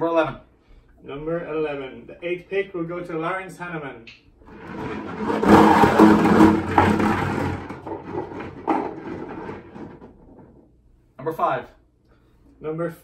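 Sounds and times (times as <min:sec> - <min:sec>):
balls rattling in plastic jug: 0:04.5 - 0:10.7
knock: 0:04.5 - 0:10.7.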